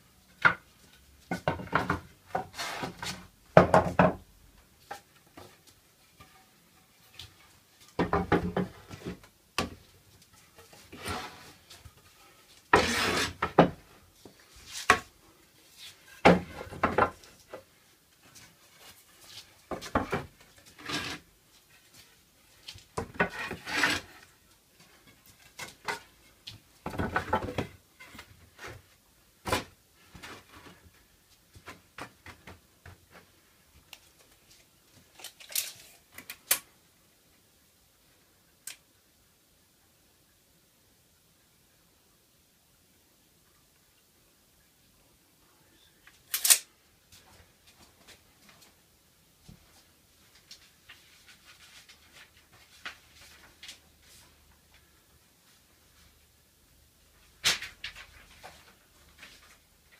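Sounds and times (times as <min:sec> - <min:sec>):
boards sliding on workbench: 0:01.5 - 0:03.2, 0:12.7 - 0:13.8
wooden boards knocking: 0:03.5 - 0:04.2.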